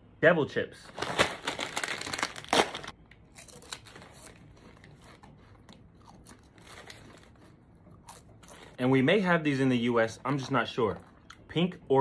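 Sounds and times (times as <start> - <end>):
foil chip bag tearing and crinkling: 0.9 - 4.7.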